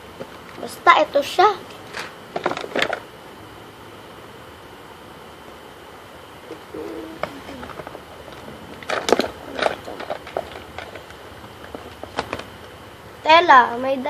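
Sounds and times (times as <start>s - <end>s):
low voice murmur: 6.5s - 7.8s.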